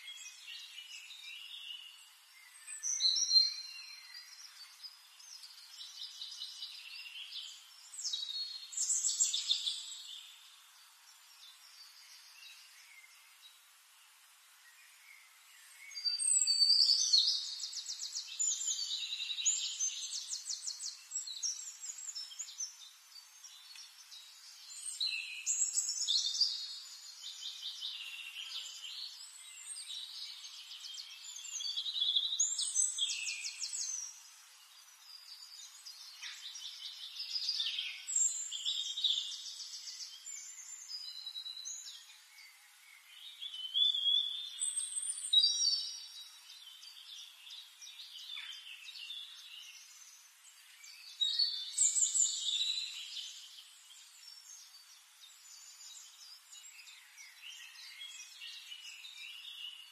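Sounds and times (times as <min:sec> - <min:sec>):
songbird trilling and chirping: 0:00.0 - 0:13.4, 0:14.6 - 0:59.9.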